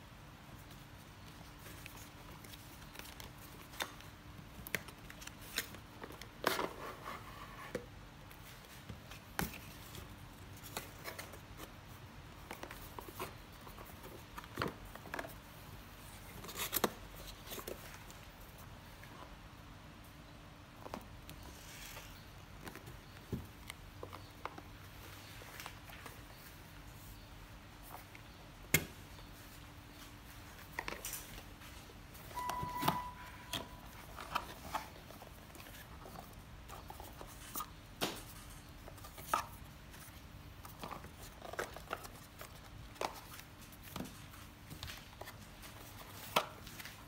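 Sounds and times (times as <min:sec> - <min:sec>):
cardboard and plastic handling: 0:01.2 - 0:19.1, 0:20.8 - 0:47.0
short squeaking tone: 0:32.4 - 0:33.8.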